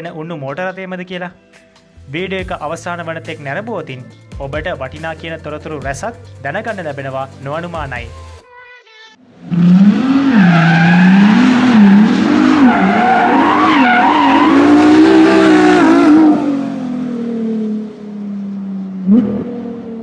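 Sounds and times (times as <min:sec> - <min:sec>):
car engine revving: 0:09.3 - 0:20.0
tyres squealing: 0:09.6 - 0:16.3.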